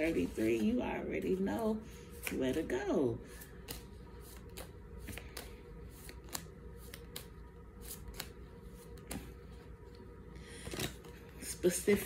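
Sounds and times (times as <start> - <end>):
cards being shuffled: 0.0 - 1.3, 3.3 - 9.7, 10.5 - 12.0.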